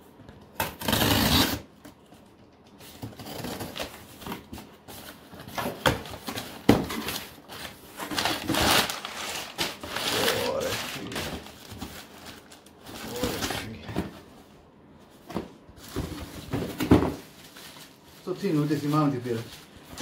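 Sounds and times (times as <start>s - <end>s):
knife slitting packing tape: 0.6s - 1.7s
cardboard and paper rustling: 0.8s - 20.0s.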